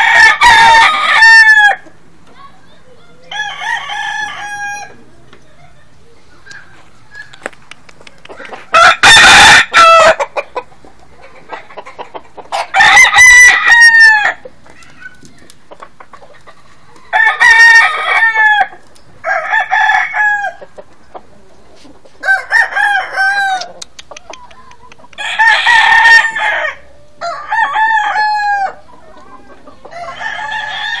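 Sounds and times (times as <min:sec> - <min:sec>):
roosters crowing: 0:00.0 - 0:01.9, 0:03.3 - 0:05.2, 0:08.3 - 0:10.7, 0:11.3 - 0:15.1, 0:16.6 - 0:20.9, 0:22.1 - 0:24.4, 0:25.2 - 0:31.0.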